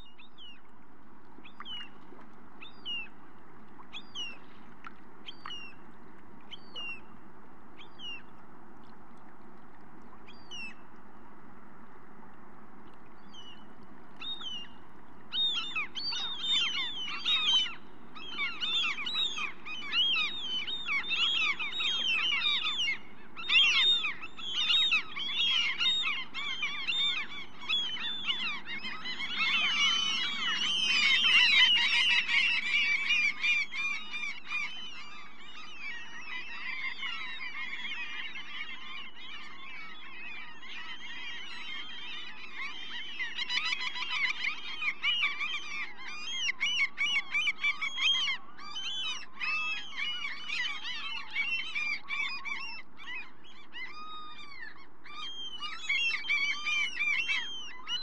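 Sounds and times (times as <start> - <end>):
gulls calling: 13.2 - 58.0.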